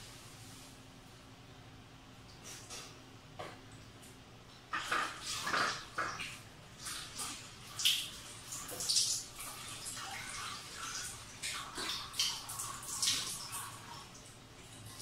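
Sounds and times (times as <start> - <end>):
water splashing in sink: 4.7 - 15.0.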